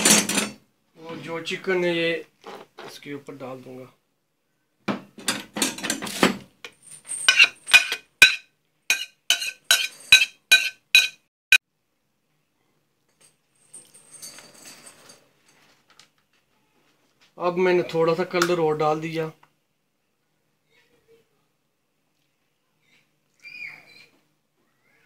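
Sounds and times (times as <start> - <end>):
spoon clinking on plate: 7.3 - 11.2
spoon scraping plate: 7.3 - 11.2.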